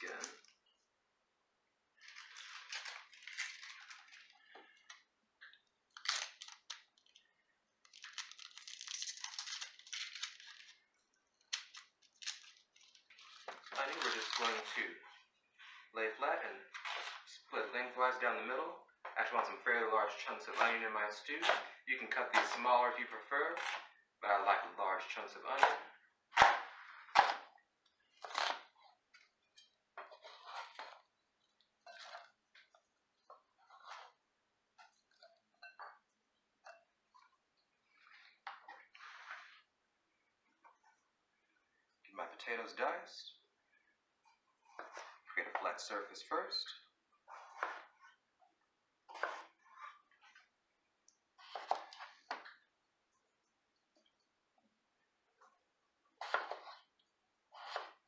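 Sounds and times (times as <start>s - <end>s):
onion skin crackling and tearing: 5.9s - 7.2s, 7.8s - 10.8s, 11.5s - 14.7s
knife cutting onion: 25.6s - 27.5s, 28.2s - 28.8s, 47.3s - 48.0s, 49.1s - 50.0s, 51.4s - 52.4s, 56.2s - 56.9s, 57.5s - 58.0s.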